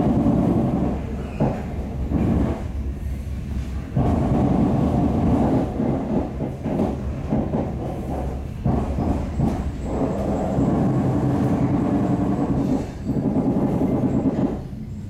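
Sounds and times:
train knocks: 0.0 - 15.0
train rumbling: 0.0 - 15.0.

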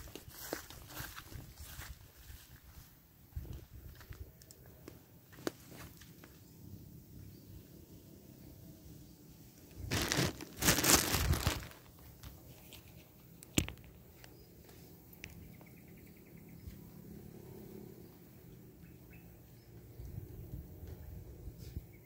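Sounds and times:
dry leaves rustling and crunching: 0.0 - 2.6, 9.7 - 13.0.

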